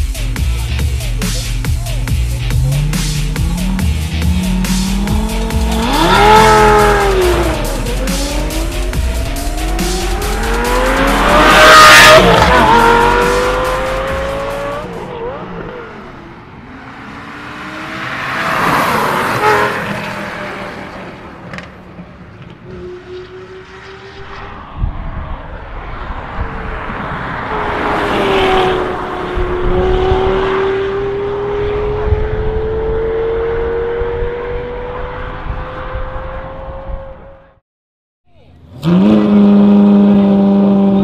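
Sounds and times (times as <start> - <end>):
electronic dance music: 0.0 - 15.0
car engine accelerating through gears: 2.3 - 21.8, 22.4 - 37.6, 38.7 - 41.0.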